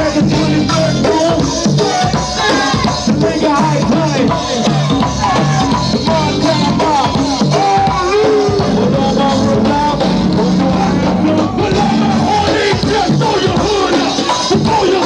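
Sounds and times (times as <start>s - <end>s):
bass line: 0.0s - 13.9s
drums: 0.0s - 15.0s
live band playing groove: 0.0s - 15.0s
bending melody line: 5.0s - 13.2s.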